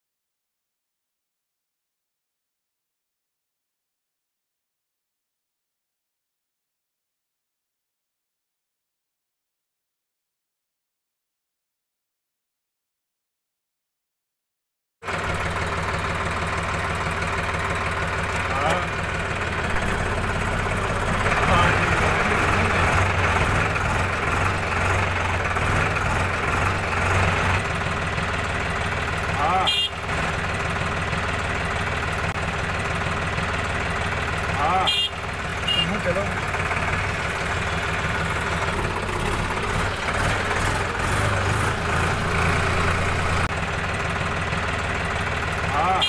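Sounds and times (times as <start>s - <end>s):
tractor diesel engine running: 15.0s - 46.0s.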